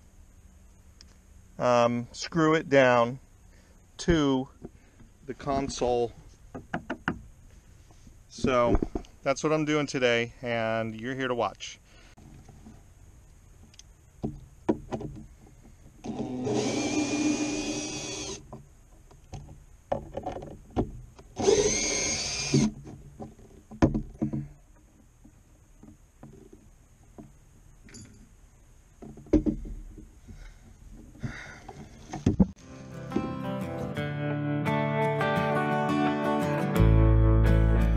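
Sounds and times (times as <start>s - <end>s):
handling knocks and clicks: 8.4s - 9.1s, 13.6s - 16.0s, 18.4s - 21.3s, 22.6s - 32.6s
power drill driving screws: 16.0s - 18.4s, 21.4s - 22.7s.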